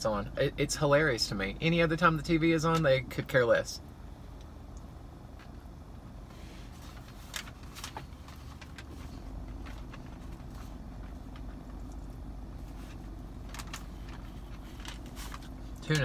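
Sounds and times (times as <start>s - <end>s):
low rumble in car cabin: 0.0s - 16.0s.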